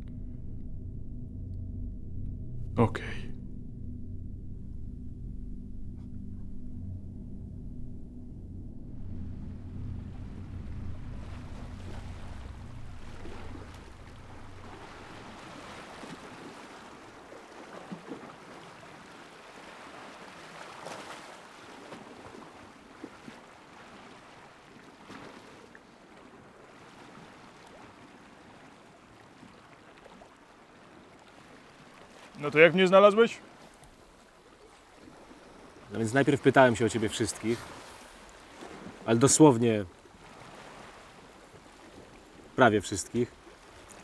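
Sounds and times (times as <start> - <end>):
low steady drone: 0.0 - 17.4
wind: 0.0 - 44.0
small splashes: 11.3 - 32.4.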